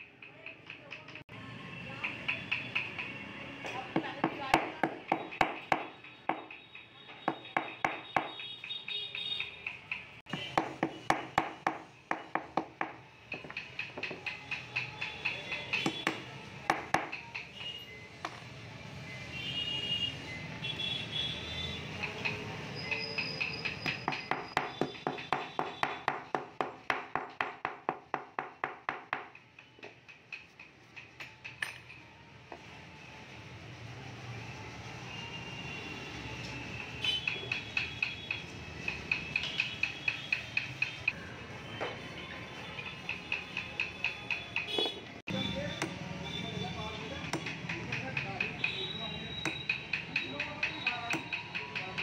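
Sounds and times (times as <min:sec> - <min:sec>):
small hammer tapping on wood: 0:02.0 - 0:06.6, 0:07.2 - 0:18.4, 0:23.2 - 0:32.0, 0:45.7 - 0:46.0, 0:47.2 - 0:52.0.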